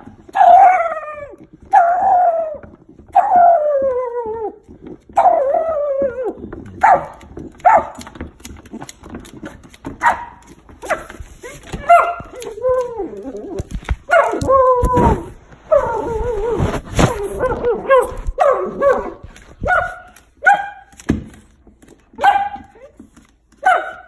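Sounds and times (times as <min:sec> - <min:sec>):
thumps: 0:00.0 - 0:24.0
puppy whining and yelping: 0:00.3 - 0:06.7, 0:11.4 - 0:19.9.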